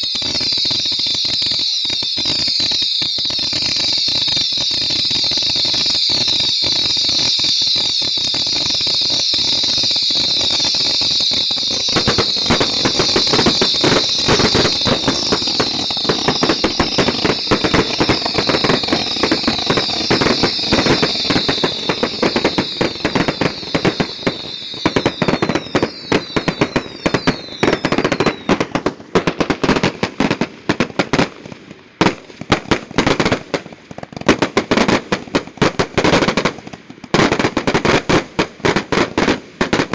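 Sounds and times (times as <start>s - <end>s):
falling whistles: 0.0s - 28.7s
fireworks crackling and popping: 0.0s - 39.9s
fireworks fountain hissing: 0.0s - 39.9s.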